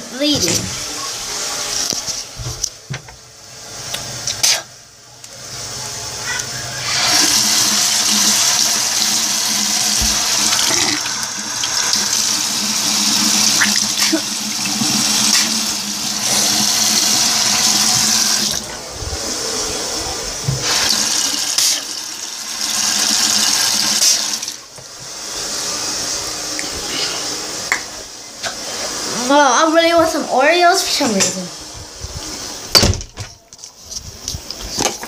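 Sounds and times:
faucet water running into sink: 6.7s - 18.7s, 20.4s - 24.8s.

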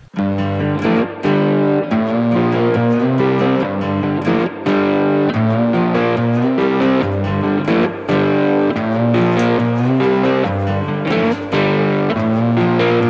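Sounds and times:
distorted electric guitar chords: 0.0s - 13.0s
steady beat: 6.6s - 13.0s.

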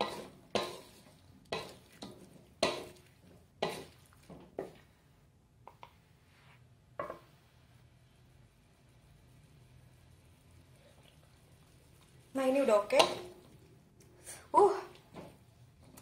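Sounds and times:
spatula scraping metal wok: 0.0s - 4.8s, 11.4s - 13.6s.

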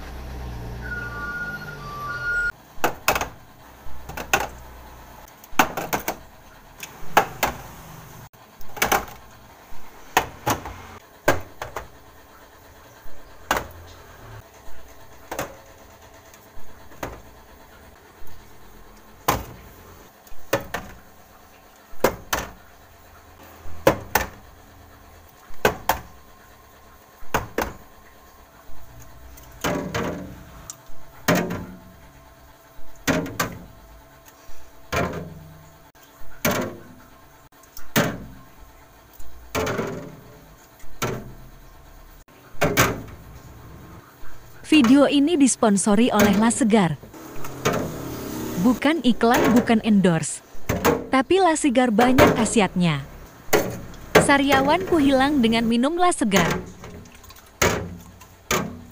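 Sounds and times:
metal cans clacking on plastic shelves: 4.0s - 4.6s, 5.5s - 6.2s.

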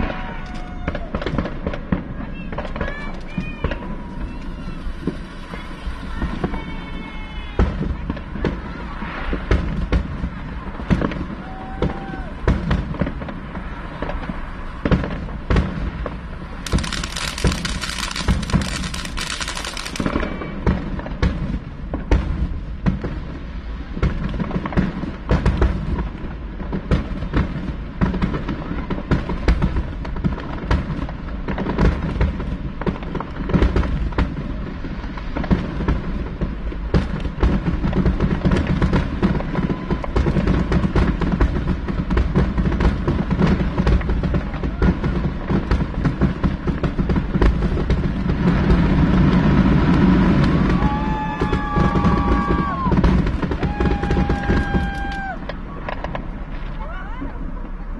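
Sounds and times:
fireworks bangs and pops: 0.0s - 57.9s
low rumble: 12.3s - 22.8s
loud hiss: 16.6s - 20.2s.

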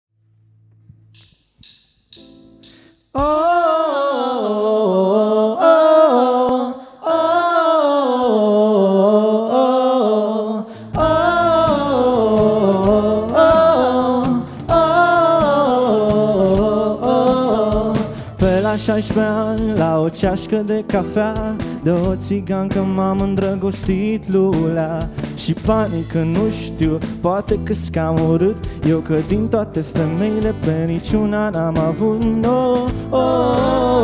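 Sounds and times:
bass: 0.2s - 3.5s, 10.7s - 34.0s
percussion: 1.1s - 3.6s, 10.9s - 34.0s
wordless sung melody: 2.5s - 34.0s.

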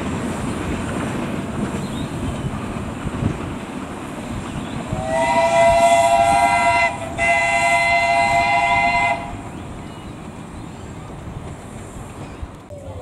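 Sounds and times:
moving train noise: 0.0s - 13.0s
steam locomotive whistle blasts: 4.9s - 9.4s.

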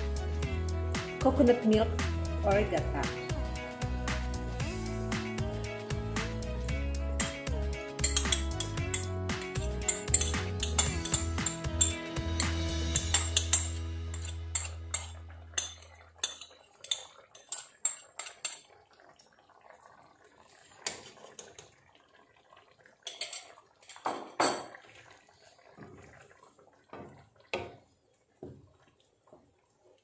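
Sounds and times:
background music: 0.0s - 15.8s
utensils clinking against pan: 7.2s - 18.7s, 23.1s - 24.7s.

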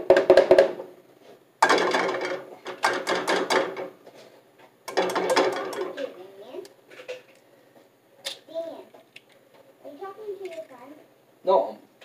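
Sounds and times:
hard objects knocking and clattering: 0.0s - 0.9s, 1.6s - 6.2s.

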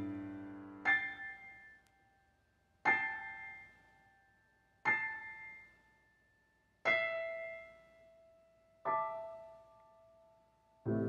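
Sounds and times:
piano notes ringing: 0.0s - 1.6s.

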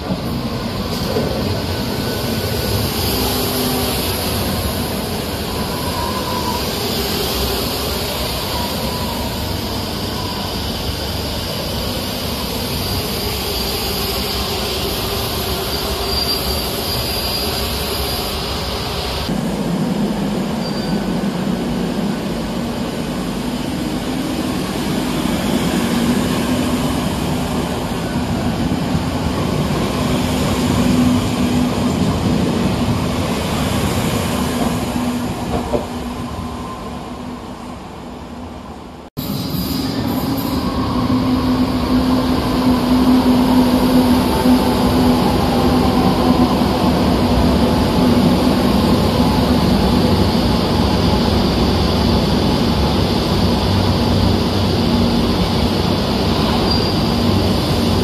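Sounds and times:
train rumbling on rails: 0.0s - 58.0s
high wheel squeal: 5.3s - 11.6s, 12.8s - 19.3s, 20.6s - 21.1s, 56.3s - 58.0s.

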